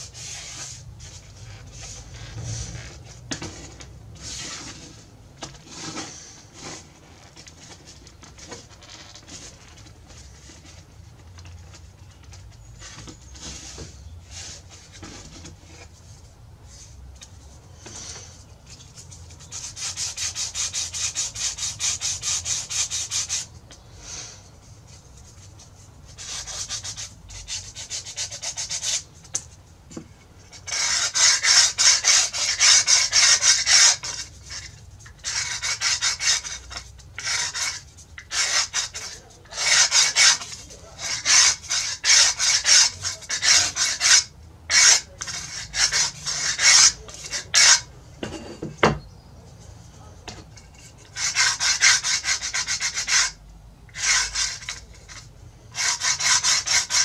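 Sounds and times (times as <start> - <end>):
hand sanding wood: 0.0 - 2.9, 17.9 - 24.0, 24.8 - 29.4, 30.5 - 47.9, 50.8 - 57.0.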